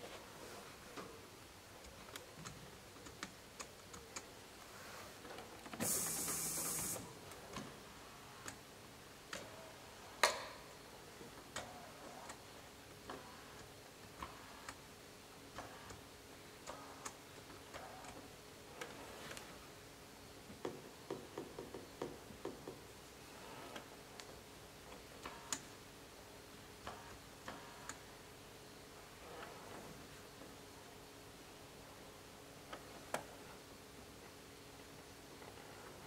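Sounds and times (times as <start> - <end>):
short hiss: 5.8 - 7.1.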